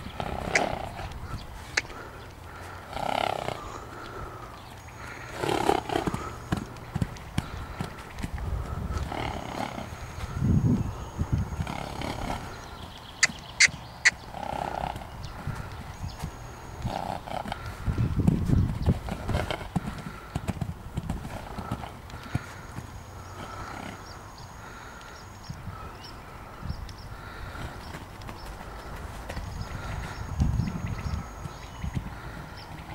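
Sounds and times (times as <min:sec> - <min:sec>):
sharp clicks: 0:00.5 - 0:01.2, 0:13.0 - 0:14.2
horse trotting on gravel: 0:05.3 - 0:10.4, 0:13.2 - 0:24.0.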